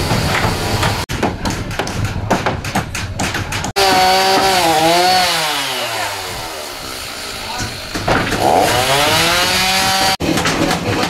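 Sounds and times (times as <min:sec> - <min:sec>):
irregular hard knocks: 0:00.0 - 0:04.7, 0:07.6 - 0:10.6
chainsaw running: 0:03.8 - 0:10.2.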